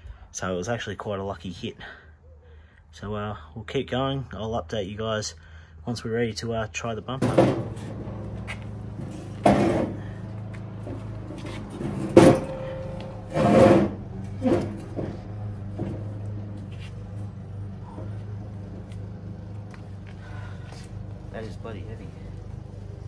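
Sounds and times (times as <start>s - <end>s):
metal knocks and scrapes: 7.2s - 17.2s.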